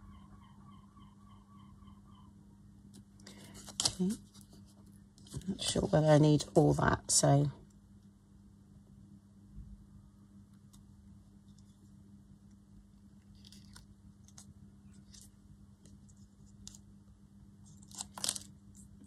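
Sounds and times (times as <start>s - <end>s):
steady low hum: 0.0s - 19.0s
paper card ticks and rustles: 2.9s - 6.0s, 13.2s - 16.9s, 17.6s - 19.0s.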